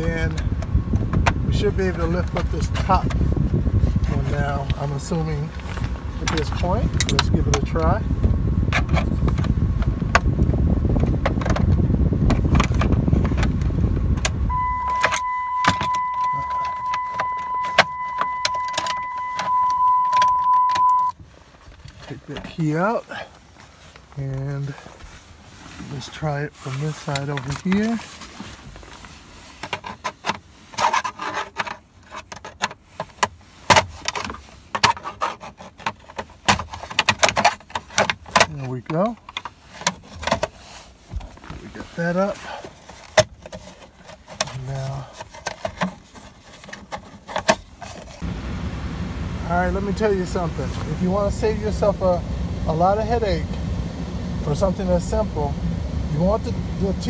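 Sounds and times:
continuous low rumble: 0.0s - 57.0s
plastic clicks creaks and scrapes: 5.5s - 8.0s, 11.0s - 19.5s, 26.7s - 28.0s, 29.6s - 48.2s
steady high tone: 14.5s - 21.1s.

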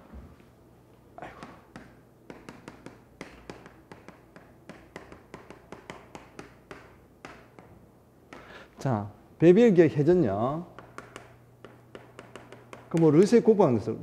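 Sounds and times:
chalk writing on blackboard: 1.4s - 7.7s, 10.8s - 13.4s.

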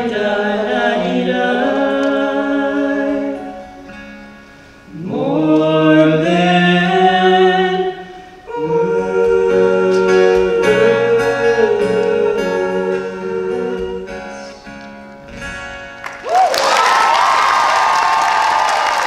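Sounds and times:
two men singing a ballad: 0.0s - 3.6s, 4.9s - 14.8s
acoustic guitar: 0.0s - 16.2s.

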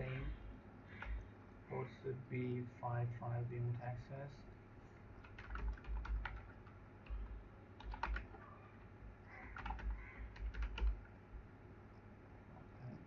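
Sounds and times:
keyboard typing: 0.9s - 1.2s, 5.2s - 8.6s, 9.4s - 11.2s.

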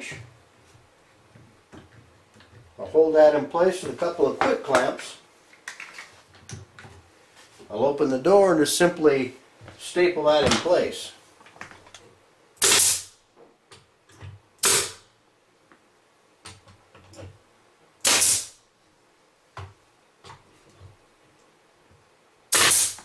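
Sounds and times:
pneumatic stapler firing: 12.6s - 13.1s, 14.6s - 15.0s, 18.0s - 18.6s, 22.5s - 23.0s.

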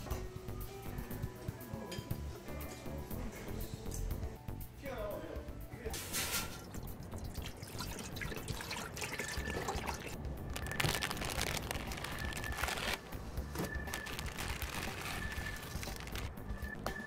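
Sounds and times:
water pouring into metal pot: 6.2s - 10.2s.

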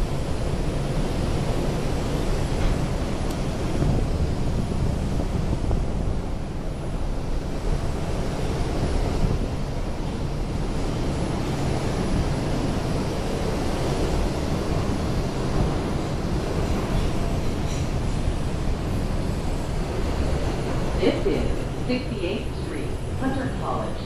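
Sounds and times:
subway car wheels rumbling: 0.0s - 24.0s.

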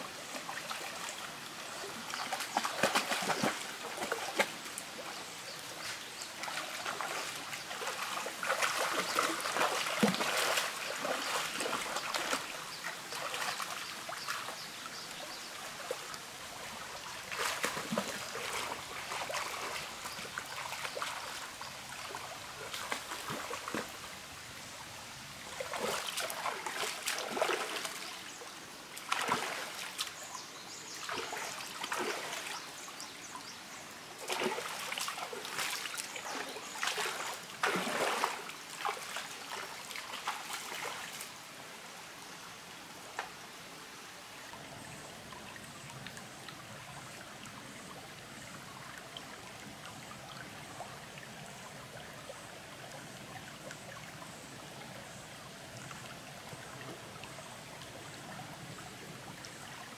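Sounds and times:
stream trickling over rocks: 0.0s - 59.9s
water splashing: 1.9s - 4.8s, 5.7s - 14.6s, 15.8s - 24.0s, 25.4s - 28.4s, 29.0s - 32.9s, 34.2s - 41.3s.

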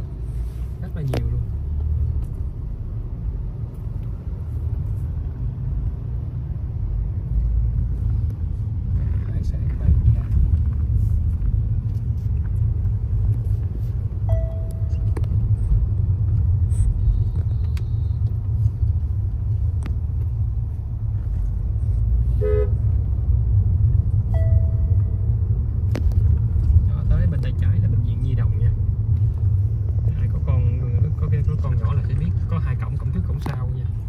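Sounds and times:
car cabin road and engine rumble: 0.0s - 34.0s
car horn beeps: 14.3s - 15.1s, 22.4s - 22.9s, 24.3s - 25.2s.

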